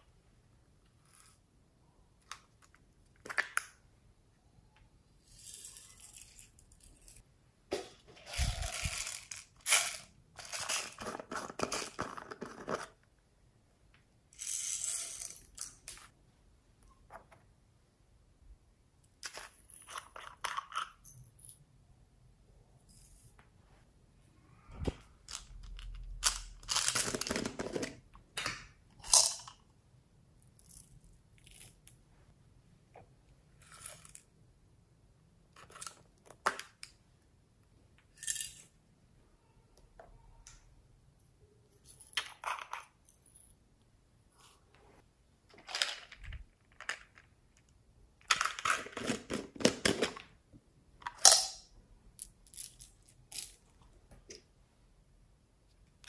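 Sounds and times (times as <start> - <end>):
beads pouring rustle: 8.2 - 11.7
plastic pots clicking and rattling: 25.3 - 29.6, 45.5 - 50.4.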